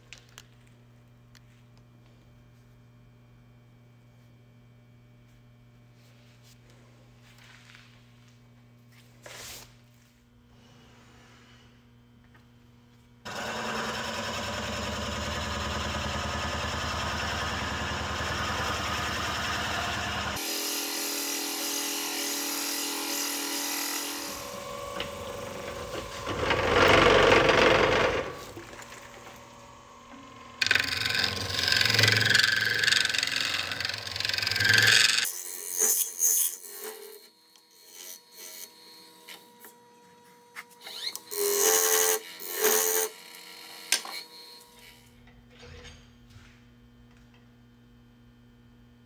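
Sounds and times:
woodworking power tools running: 13.2s - 45.7s.

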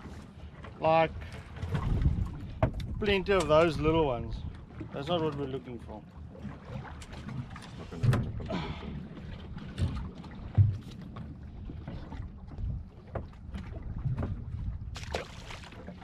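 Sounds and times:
water slapping boat hull: 0.0s - 16.0s
wind buffeting microphone: 1.1s - 4.8s.

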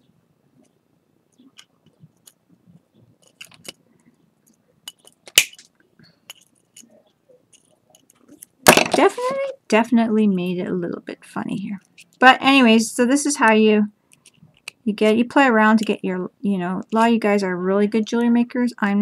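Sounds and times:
pliers clicking on wire: 3.2s - 3.8s, 4.4s - 5.7s.

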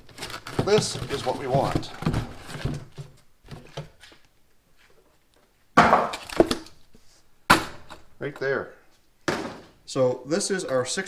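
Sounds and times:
cardboard box rustling and scraping: 0.0s - 3.0s.

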